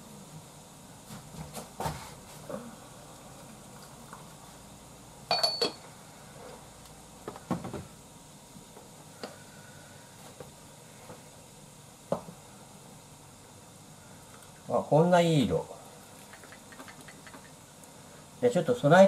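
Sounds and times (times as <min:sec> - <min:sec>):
porcelain teaware clinking: 0:05.3 - 0:05.8.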